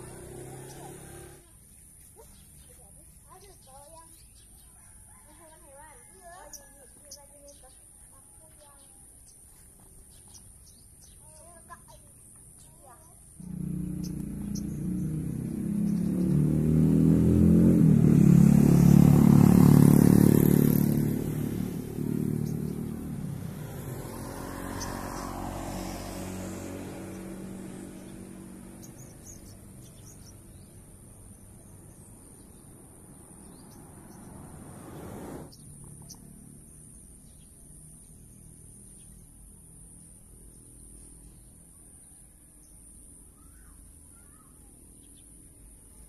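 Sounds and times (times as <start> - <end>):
vehicle engine passing by: 0.0 - 1.6, 13.4 - 42.2.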